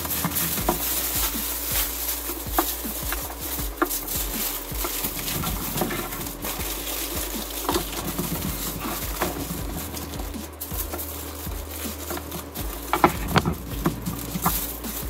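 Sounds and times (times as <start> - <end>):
aluminium foil crinkling: 0.0 - 15.0.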